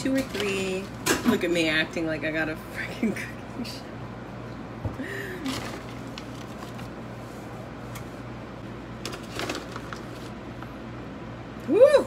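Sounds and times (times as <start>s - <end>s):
steady low hum: 0.0s - 12.0s
plastic bag rustling: 5.4s - 7.1s, 9.0s - 10.4s.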